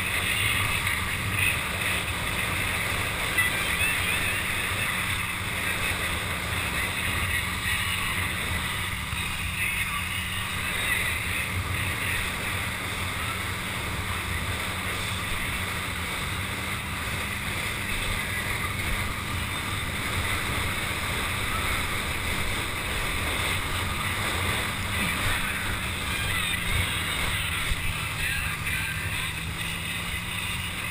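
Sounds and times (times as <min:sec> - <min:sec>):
low steady drone: 0:00.0 - 0:30.9.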